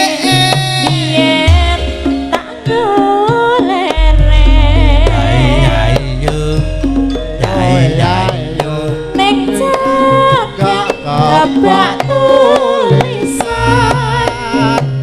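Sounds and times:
person singing: 0.0s - 15.0s
hand drum strokes: 1.0s - 15.0s
ringing metallophone notes: 4.0s - 14.5s.

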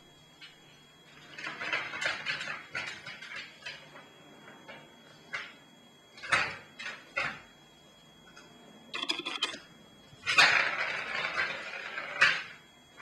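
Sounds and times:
ball rattling round plastic track: 1.1s - 4.0s, 9.0s - 9.6s, 10.3s - 12.6s.

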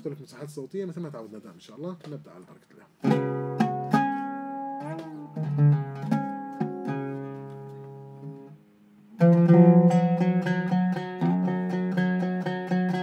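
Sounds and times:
oud plucked notes: 3.0s - 13.0s.

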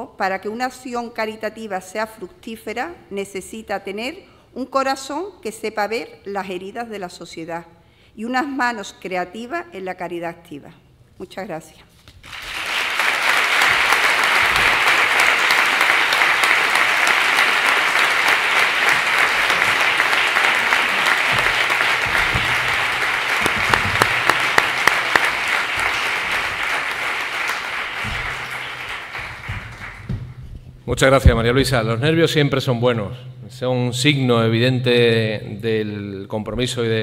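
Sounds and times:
audience applauding: 12.2s - 30.4s.

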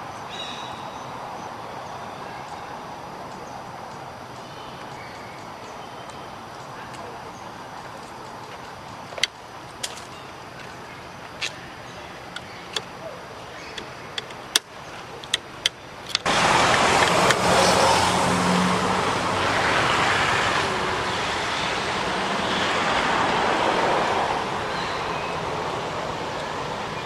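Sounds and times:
loud steady rushing noise: 16.2s - 27.0s.

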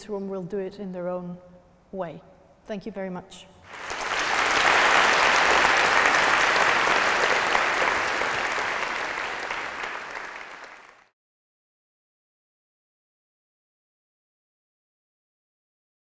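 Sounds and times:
crowd applauding: 3.7s - 11.1s.

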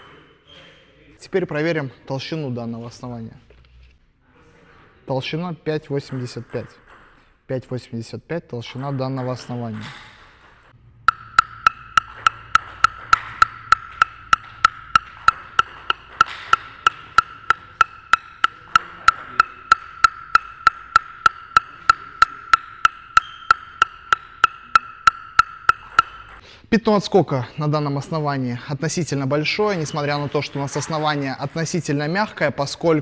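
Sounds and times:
table tennis ball bouncing on blade: 8.7s - 26.4s.

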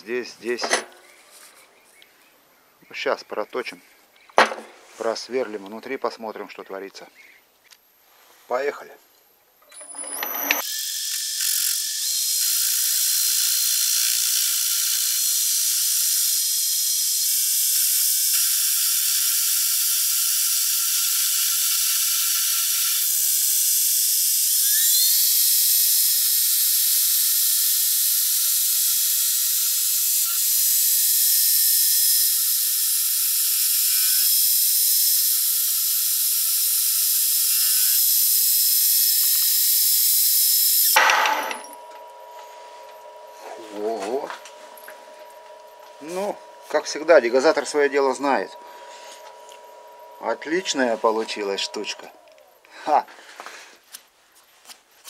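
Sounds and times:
metal lathe cutting with whine: 9.8s - 52.7s.

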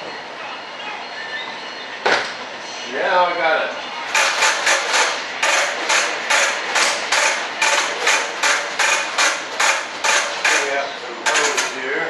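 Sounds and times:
hand rasping fiberglass panel: 4.2s - 11.7s.

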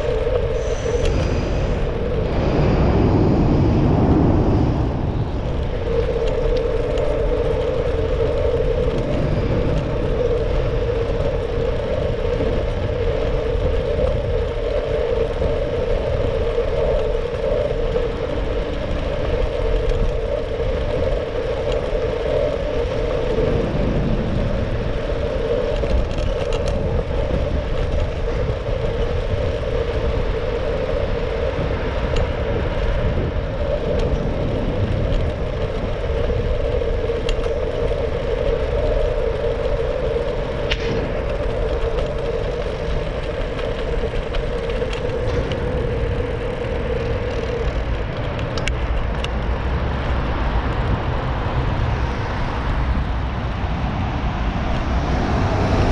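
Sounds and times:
steady hum: 0.0s - 12.6s
bicycle tyre noise: 0.0s - 55.9s
wind rumble on microphone: 0.0s - 55.9s
faint clicks: 33.6s - 49.5s.

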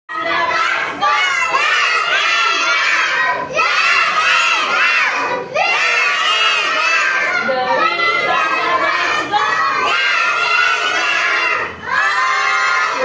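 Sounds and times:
young children shouting: 0.1s - 13.0s.

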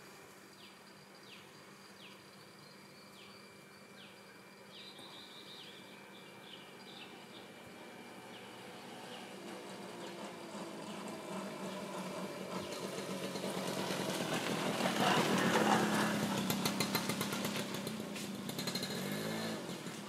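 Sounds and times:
passing vehicle engine: 5.9s - 20.0s.

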